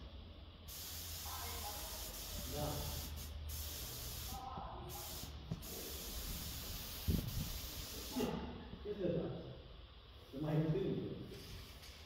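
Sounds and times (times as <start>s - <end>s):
spray gun hissing: 0.7s - 8.4s.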